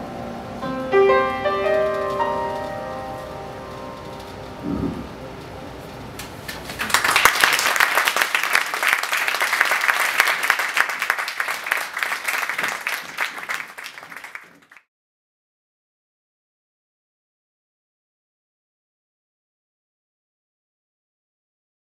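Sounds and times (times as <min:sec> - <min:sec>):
audience applause: 0:06.5 - 0:14.9.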